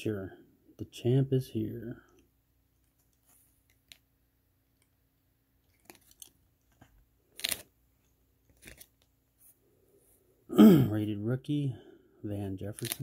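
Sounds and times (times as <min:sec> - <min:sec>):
trading cards rustling: 0:02.8 - 0:04.1, 0:05.6 - 0:09.1, 0:12.6 - 0:13.0
card scraping: 0:05.7 - 0:07.7, 0:08.5 - 0:09.1, 0:12.8 - 0:13.0.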